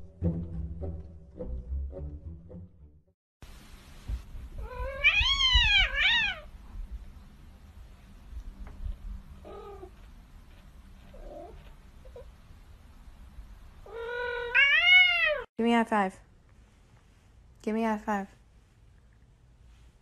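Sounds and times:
kitten meowing: 4.6s - 6.5s, 13.9s - 15.5s.

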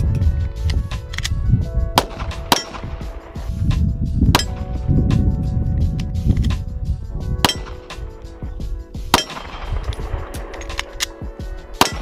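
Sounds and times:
background music with steady tones: 0.0s - 12.0s
handgun shots: 2.0s - 2.9s, 9.1s - 11.2s, 11.8s - 12.0s.

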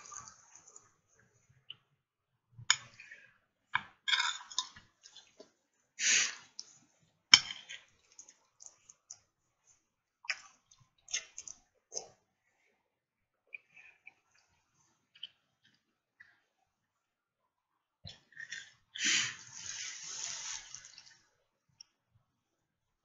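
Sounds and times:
wet mouth clicks and smacks: 10.2s - 12.2s.

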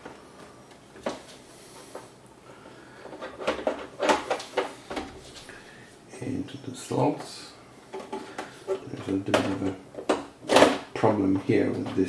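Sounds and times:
plastic parts knocking and clicking: 3.0s - 5.1s, 7.9s - 12.0s.

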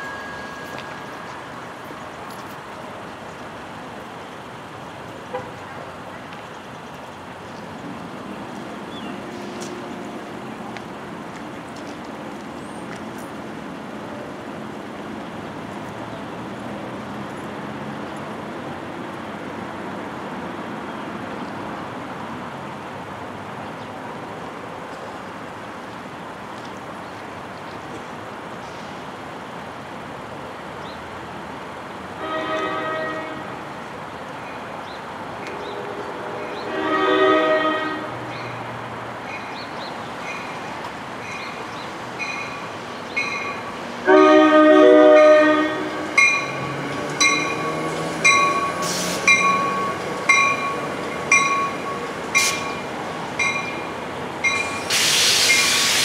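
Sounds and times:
train air horn blast: 32.2s - 33.6s, 35.6s - 38.2s, 44.0s - 46.0s.

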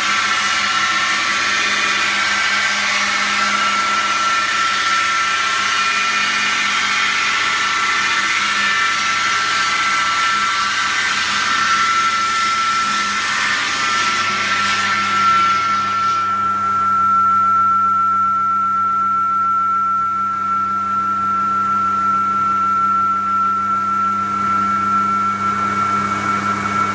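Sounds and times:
saw grinding through brick: 0.0s - 16.4s
saw blade whine: 0.0s - 26.9s.

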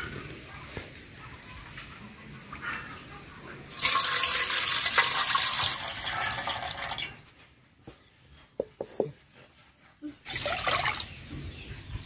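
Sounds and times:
water splashing in steel bowl: 3.7s - 7.2s.

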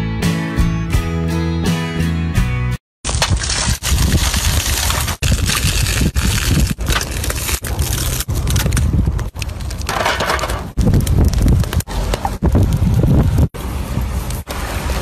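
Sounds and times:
aluminium foil crinkling: 3.1s - 11.0s.

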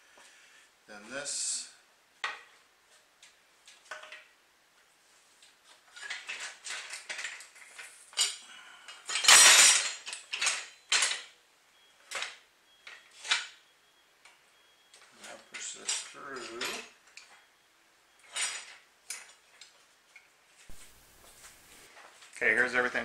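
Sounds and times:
metal parts knocking and clinking: 5.9s - 8.4s, 9.0s - 11.3s.

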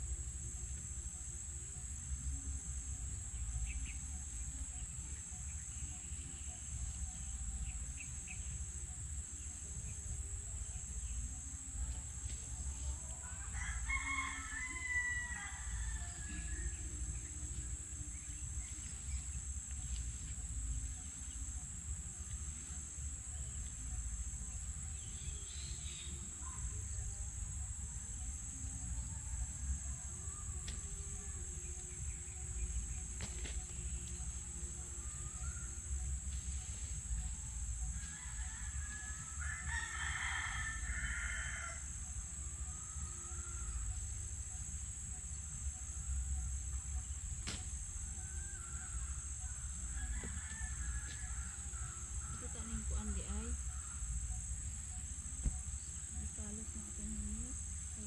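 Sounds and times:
high insect buzz: 0.0s - 58.0s
rooster crowing: 13.2s - 16.9s, 38.0s - 41.9s, 49.8s - 53.5s.

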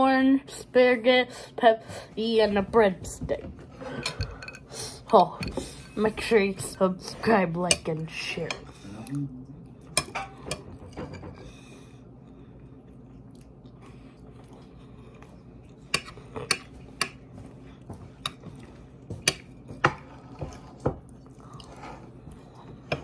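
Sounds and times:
person chewing food: 8.6s - 23.0s.

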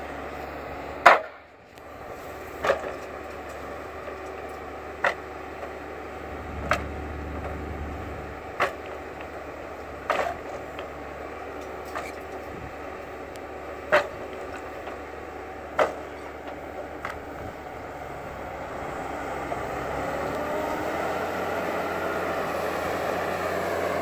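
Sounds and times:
diesel engine humming: 0.0s - 24.0s
logs knocking together: 2.6s - 5.8s, 6.6s - 7.6s, 8.5s - 11.0s, 13.8s - 15.0s, 15.7s - 17.3s.

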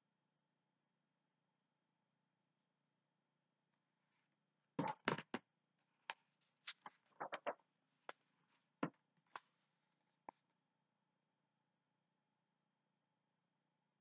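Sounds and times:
book pages turning: 6.1s - 7.6s.

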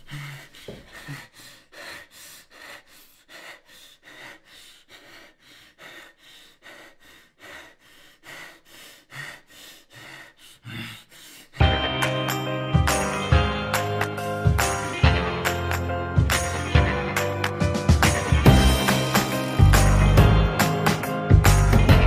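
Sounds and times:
rapid heavy breathing: 0.0s - 12.0s
music: 11.6s - 22.0s.

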